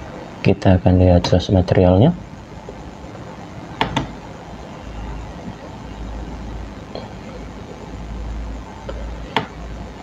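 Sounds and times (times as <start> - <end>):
computer mouse click: 3.8 - 4.1.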